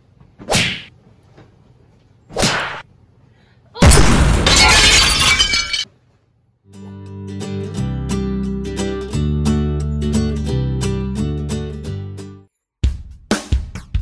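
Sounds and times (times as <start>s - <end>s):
acoustic guitar music: 6.7s - 12.5s.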